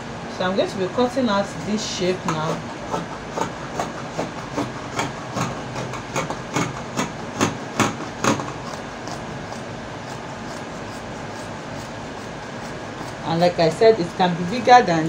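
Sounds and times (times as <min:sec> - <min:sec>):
scissors snipping fabric: 0:02.2 - 0:13.5.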